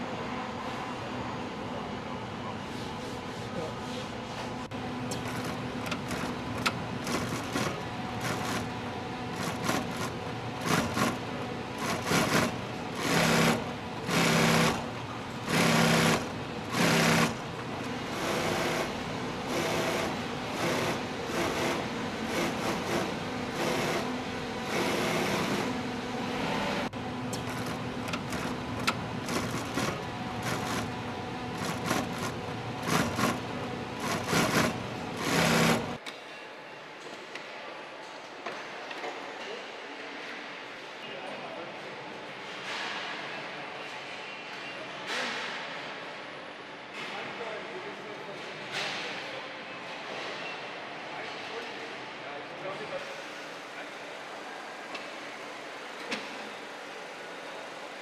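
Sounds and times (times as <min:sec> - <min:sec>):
sewing machines stitching: 0:05.1 - 0:25.8, 0:27.4 - 0:36.0.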